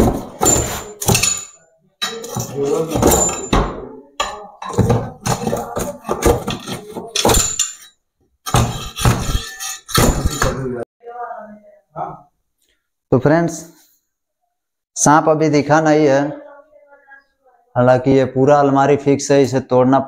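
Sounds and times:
cupboard being smashed: 0:00.0 - 0:01.4, 0:04.7 - 0:07.6.

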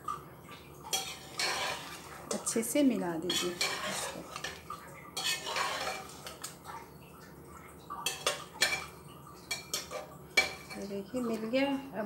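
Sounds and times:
ladle scraping pot: 0:00.9 - 0:02.6, 0:03.2 - 0:06.6, 0:09.5 - 0:10.9.

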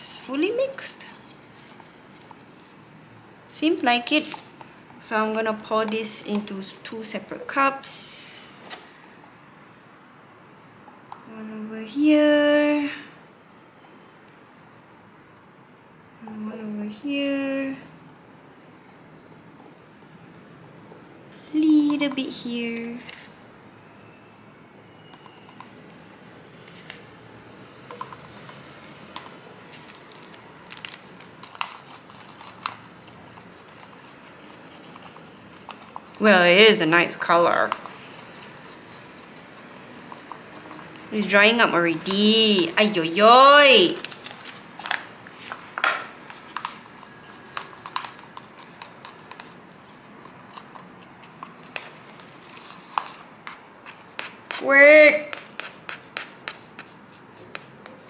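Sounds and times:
plastic crinkling: 0:00.2 - 0:02.9, 0:29.0 - 0:42.7, 0:43.8 - 0:54.4
stick scraping plastic cup: 0:04.0 - 0:06.5, 0:27.9 - 0:58.0.

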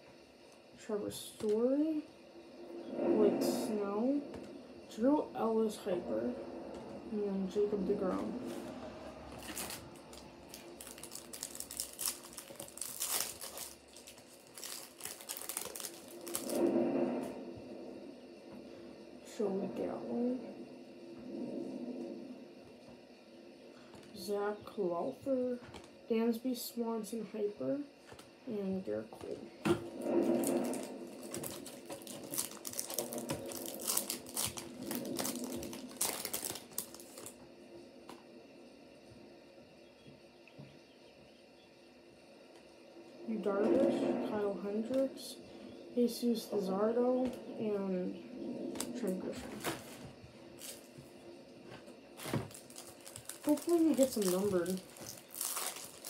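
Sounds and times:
foil wrapper crinkling: 0:09.4 - 0:16.7, 0:30.2 - 0:37.4, 0:50.6 - 0:50.9, 0:52.2 - 0:56.0.

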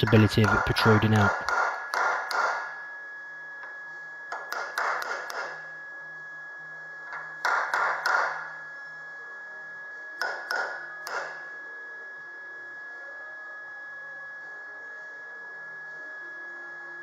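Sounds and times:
hammer tapping sheet metal: 0:00.0 - 0:02.6.

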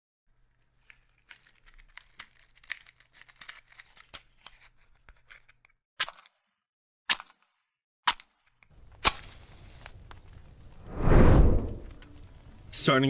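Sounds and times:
crackling and crinkling clicks: 0:00.4 - 0:06.4, 0:07.1 - 0:10.8.

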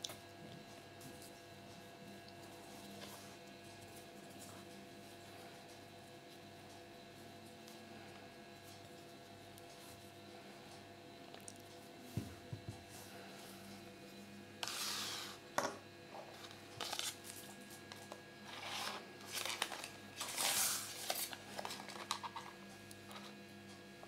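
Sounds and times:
paper leaflet rustling and crinkling: 0:16.4 - 0:22.6.

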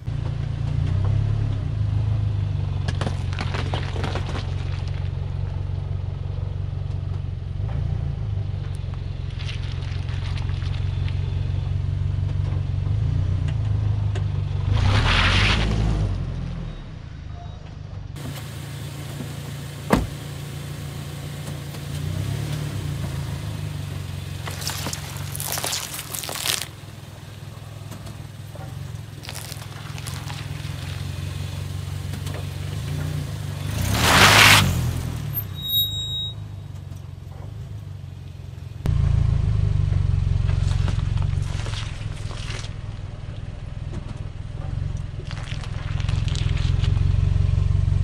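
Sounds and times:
tyres rolling over asphalt: 0:00.0 - 0:16.4, 0:17.1 - 0:39.0
car engine low hum: 0:00.0 - 0:48.0
tyre crunching fruit: 0:24.3 - 0:27.1, 0:27.8 - 0:31.3, 0:40.4 - 0:43.4, 0:45.0 - 0:47.2.

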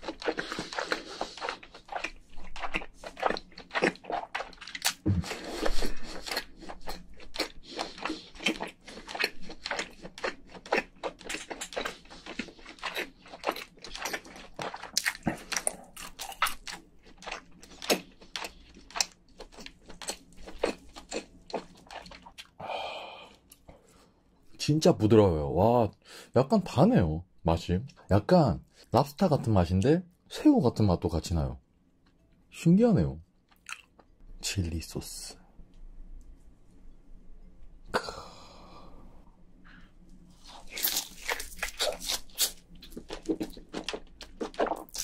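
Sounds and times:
person chewing with mouth clicks: 0:00.0 - 0:22.6, 0:33.5 - 0:34.1, 0:39.7 - 0:45.0.

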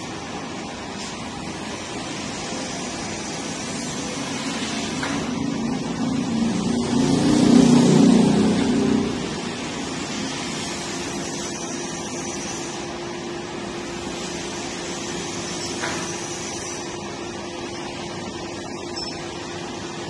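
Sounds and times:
machine running with low hum: 0:00.0 - 0:20.0.

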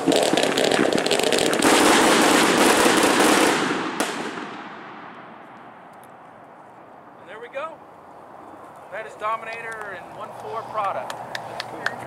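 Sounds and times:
firework bang: 0:00.0 - 0:05.8
fireworks crackling volley: 0:00.0 - 0:12.0.

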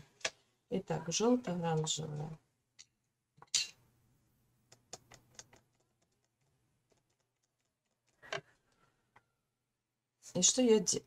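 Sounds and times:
painting tools clicking and tapping: 0:04.7 - 0:08.5.

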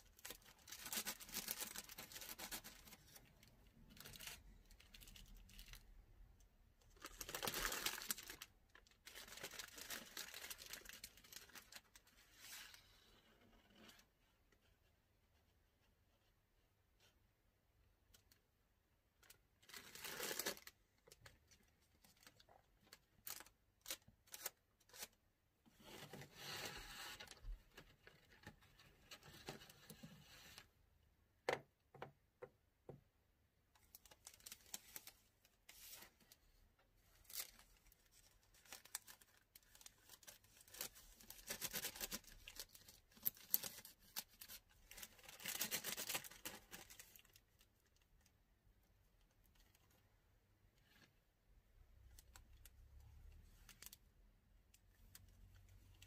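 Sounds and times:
plastic bag rustling: 0:07.0 - 0:12.1.

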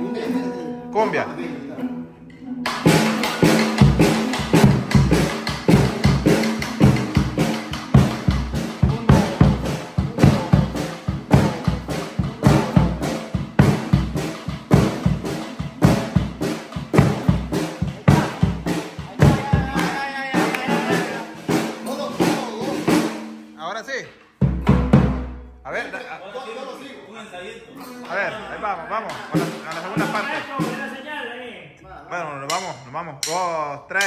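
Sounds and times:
acoustic guitar playing: 0:00.0 - 0:26.7, 0:27.6 - 0:31.0
bass drum beaten with mallet: 0:02.7 - 0:23.4, 0:24.4 - 0:25.6.

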